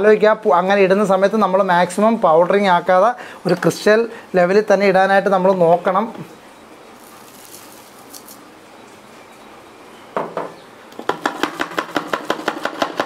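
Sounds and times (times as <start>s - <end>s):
knock: 10.2s - 13.0s.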